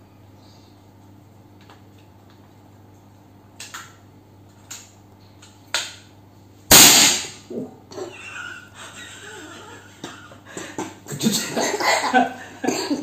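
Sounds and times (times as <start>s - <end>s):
air rifle shot: 6.7s - 7.4s.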